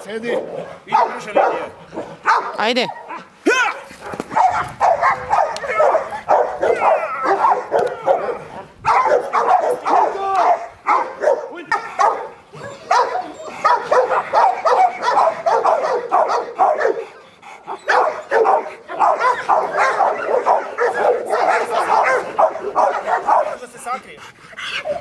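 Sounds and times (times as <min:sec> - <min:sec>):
dog barking rapidly: 0:00.3 - 0:23.7.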